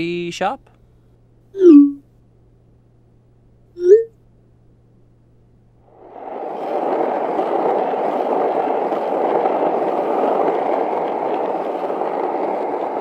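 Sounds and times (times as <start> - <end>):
skateboard wheels rolling on pavement: 5.8 - 13.0.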